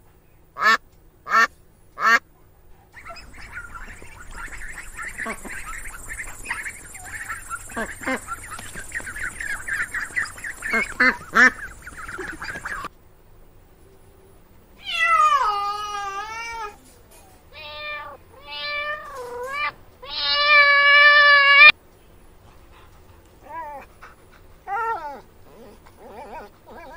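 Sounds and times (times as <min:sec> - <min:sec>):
ducks chattering calls: 0:00.6 - 0:02.2, 0:02.9 - 0:12.9
cat meowing: 0:14.8 - 0:16.8, 0:17.5 - 0:21.7.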